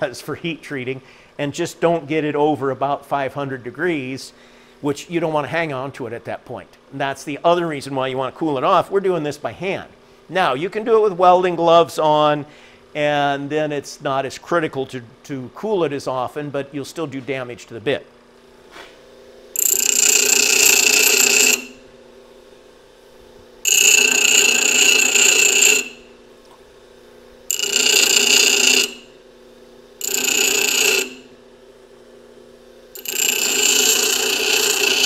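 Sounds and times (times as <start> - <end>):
bench grinder grinding drill bit: 19.6 - 21.8, 23.7 - 26.1, 27.5 - 29.2, 30.0 - 31.4, 33.0 - 35.0
grinder motor humming: 19.6 - 22.0, 23.6 - 31.7, 32.9 - 35.0.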